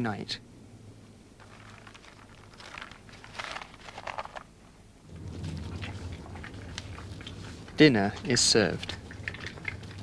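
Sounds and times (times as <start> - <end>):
low steady hum: 0.0 - 10.0
food packaging crinkling: 1.4 - 4.7
badgers munching and crunching: 1.4 - 10.0.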